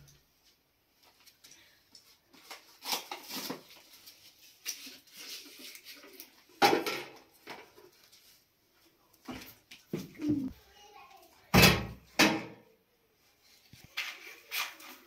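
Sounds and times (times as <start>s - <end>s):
cookware and utensils clattering: 5.2s - 7.9s.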